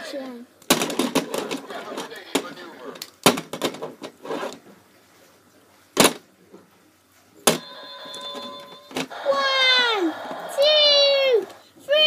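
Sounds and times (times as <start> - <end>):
plastic figures knocking on mat: 0.7 - 1.6.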